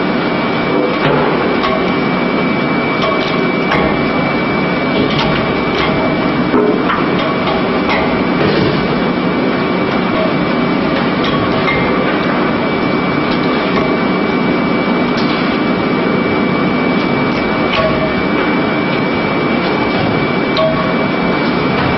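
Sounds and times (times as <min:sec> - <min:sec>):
machinery din with high whine: 0:00.0 - 0:21.9.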